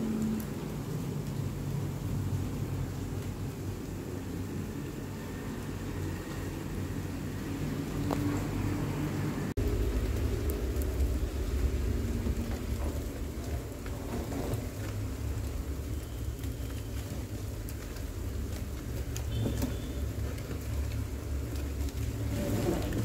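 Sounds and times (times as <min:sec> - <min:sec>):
steady low rumble: 0:09.5 - 0:14.3.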